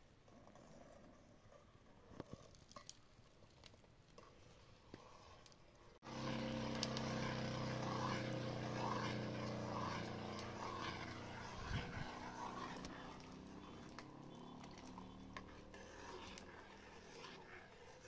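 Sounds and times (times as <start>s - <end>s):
engine running steadily: 6.0s - 17.1s.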